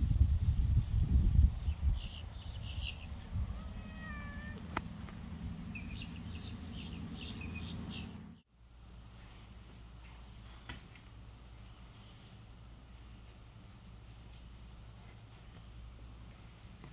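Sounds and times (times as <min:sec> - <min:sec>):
wind rumble on microphone: 0:00.0 - 0:08.3
kitten meowing: 0:03.4 - 0:04.7.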